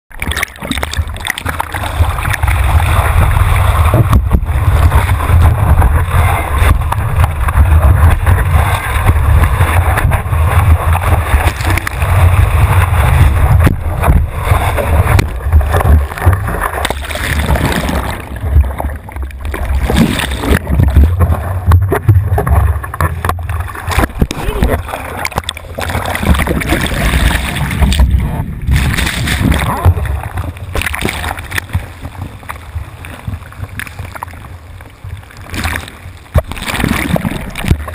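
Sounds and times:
water rushing and splashing: 0.1s - 37.9s
wind buffeting camera: 1.8s - 19.0s.

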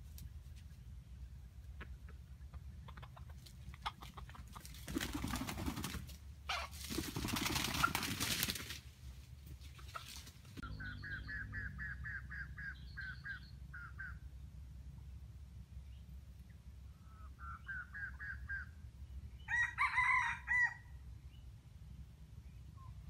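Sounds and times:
junglefowl clucking: 1.7s - 5.8s, 6.4s - 8.4s, 9.7s - 14.2s, 16.9s - 18.8s.

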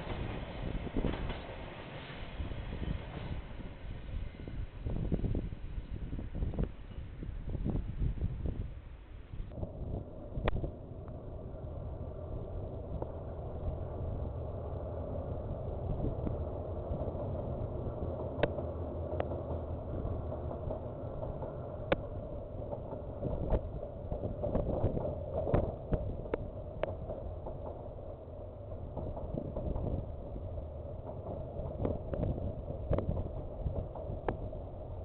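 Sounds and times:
train wheels clicking and clanking: 0.0s - 5.5s, 10.3s - 35.0s
diesel train rumbling: 0.0s - 35.0s.

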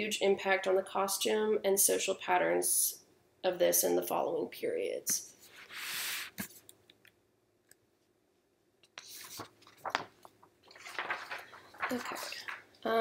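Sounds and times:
soft breath near microphone: 5.4s - 6.5s.

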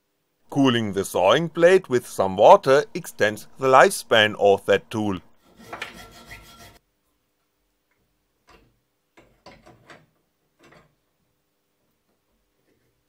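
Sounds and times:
faint metallic clicks and knocks: 7.9s - 11.0s.

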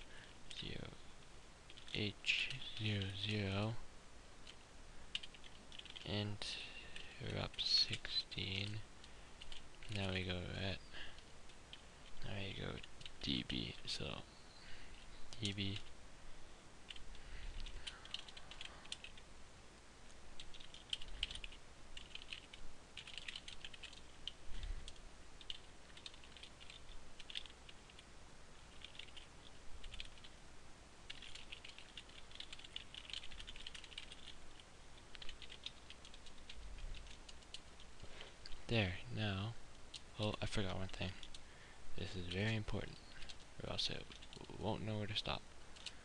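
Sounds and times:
computer keyboard typing: 1.7s - 3.3s, 4.4s - 6.1s, 9.4s - 10.1s, 12.8s - 13.8s, 16.9s - 19.2s, 20.4s - 28.0s, 28.7s - 30.4s, 31.1s - 37.9s, 41.1s - 41.4s, 43.2s - 44.5s, 45.8s - 46.0s.

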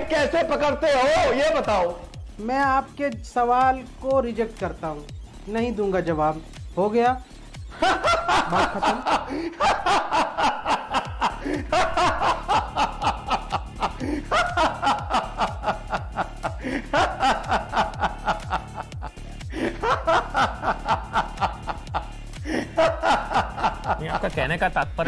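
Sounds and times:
background music with fast beat: 0.0s - 25.0s
man snickering laughter: 7.8s - 24.2s.

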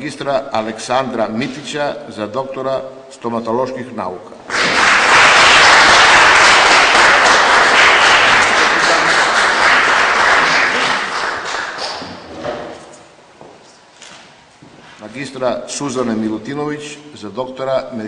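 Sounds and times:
audience applauding: 4.5s - 12.3s.

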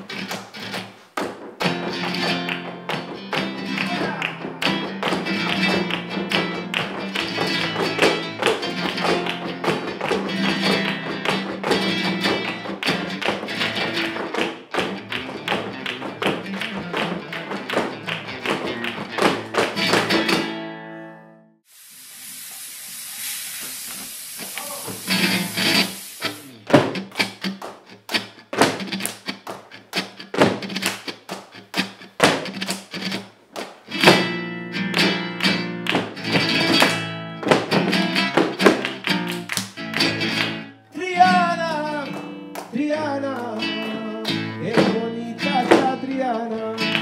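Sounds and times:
flamenco guitar music: 0.0s - 21.5s, 24.4s - 47.0s
heeled shoes tapping on platform: 6.8s - 20.5s, 35.8s - 39.0s.

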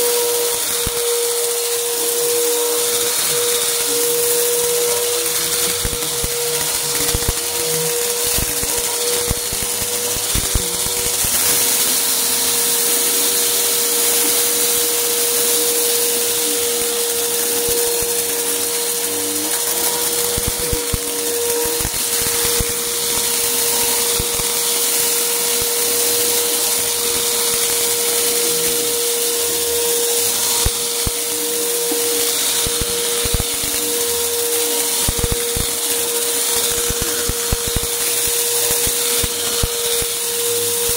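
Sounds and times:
vacuum cleaner whining: 0.0s - 40.9s.

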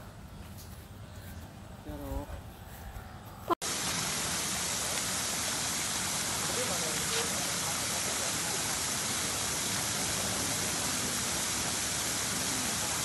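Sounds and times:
water rushing over pool rim: 3.6s - 13.0s.

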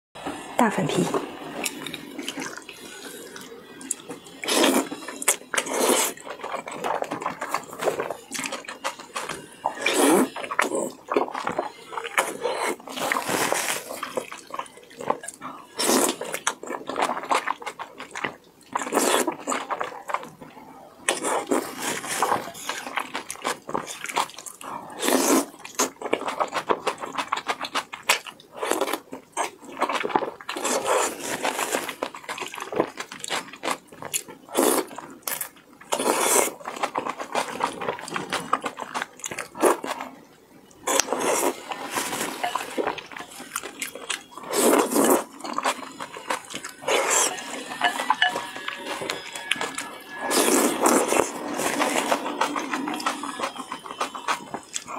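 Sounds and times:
noodle slurping: 1.6s - 18.2s, 21.1s - 26.9s, 40.9s - 54.9s.

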